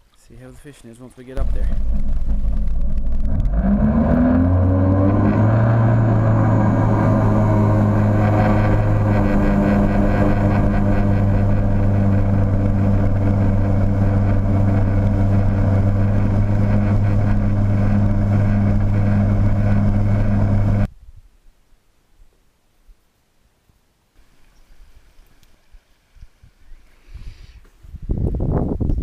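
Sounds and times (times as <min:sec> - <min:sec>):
personal watercraft engine droning: 0:01.4 - 0:20.9.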